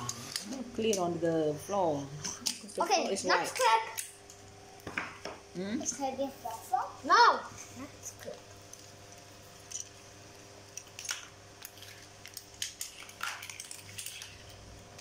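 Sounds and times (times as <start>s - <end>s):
steady low hum: 0.0s - 15.0s
plastic toy blocks clattering: 11.0s - 14.6s.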